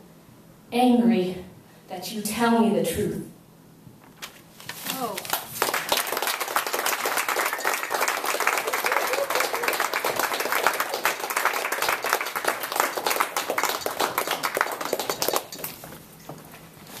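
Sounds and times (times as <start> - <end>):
audience applauding: 5.6 - 15.8.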